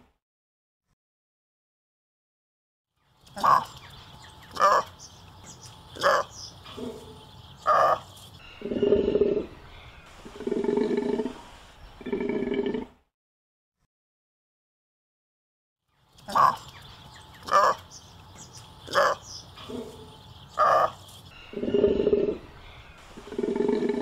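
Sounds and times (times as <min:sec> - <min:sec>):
animal calling: 0:03.4 - 0:03.8, 0:04.5 - 0:05.0, 0:05.9 - 0:11.4, 0:12.0 - 0:12.9, 0:16.3 - 0:16.7, 0:17.4 - 0:17.9, 0:18.8 - 0:24.0.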